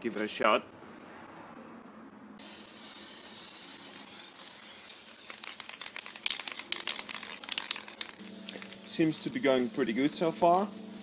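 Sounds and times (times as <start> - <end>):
spray paint can hissing: 2.4 - 11.0.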